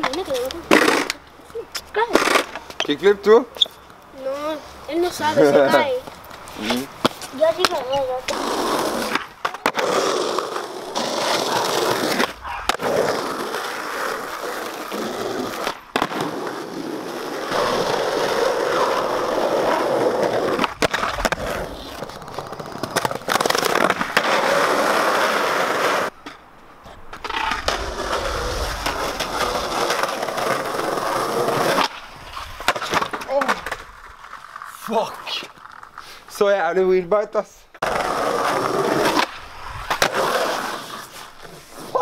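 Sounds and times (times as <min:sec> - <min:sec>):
skateboard clacks: 0:00.0 - 0:01.2, 0:06.7 - 0:16.6, 0:17.4 - 0:26.4, 0:27.1 - 0:34.6
skateboard wheels rolling on stone: 0:00.0 - 0:37.0, 0:37.8 - 0:42.0.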